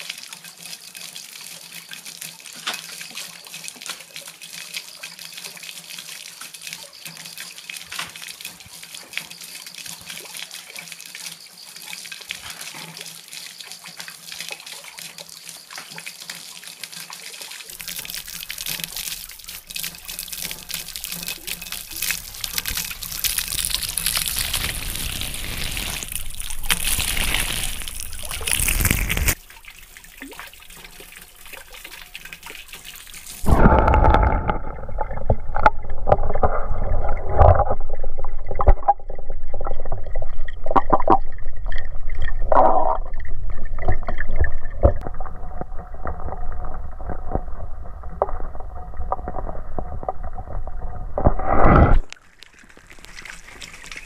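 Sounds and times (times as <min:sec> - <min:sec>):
fountain water splashing: 0:00.0 - 0:34.3, 0:52.2 - 0:54.0
muffled underwater gurgling: 0:33.4 - 0:52.1.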